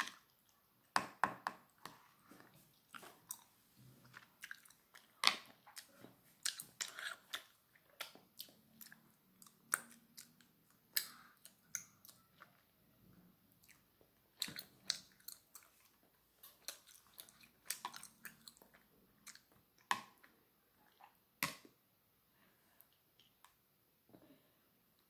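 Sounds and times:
chopsticks tapping plastic plate: 1.0 - 2.0
chewing soft rice cakes: 1.8 - 21.2.

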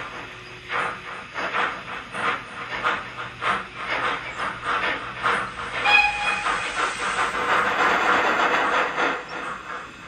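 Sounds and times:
steam locomotive chuffing: 0.0 - 10.0
steam whistle: 5.8 - 6.6.

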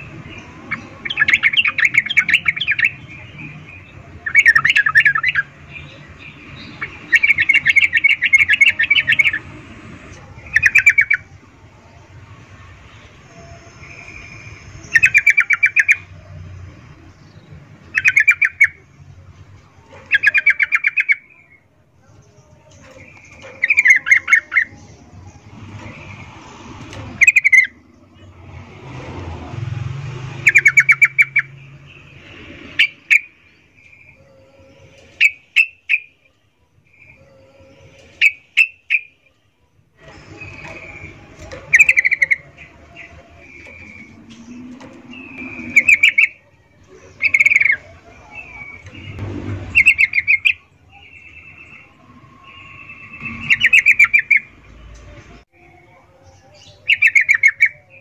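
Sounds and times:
bird chattering chirps: 17.4 - 18.8, 20.0 - 21.4, 30.4 - 31.6, 40.1 - 54.6.

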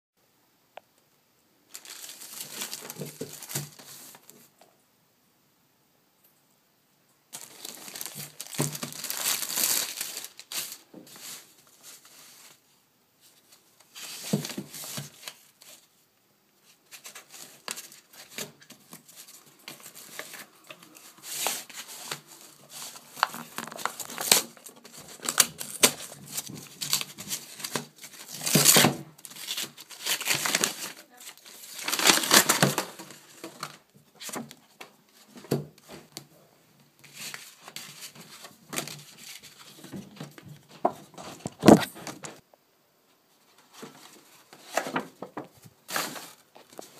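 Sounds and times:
plastic and paper packaging crinkling: 1.7 - 4.5, 7.3 - 12.6, 16.6 - 36.3, 37.0 - 42.4, 43.6 - 46.9.

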